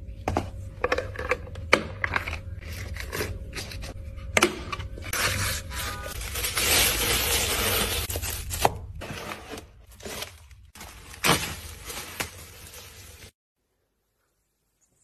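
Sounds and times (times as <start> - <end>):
plastic bag rustling: 5.2 - 13.4.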